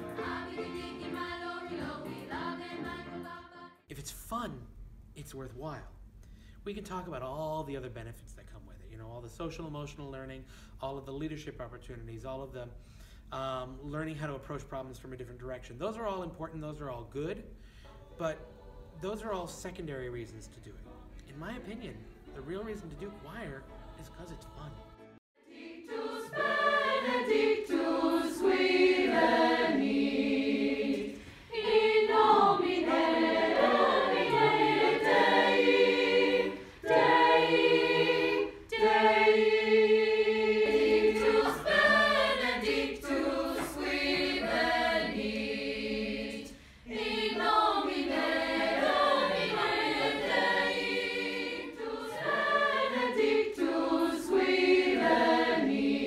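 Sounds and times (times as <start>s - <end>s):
choir singing: 0.0s - 3.9s, 22.5s - 56.0s.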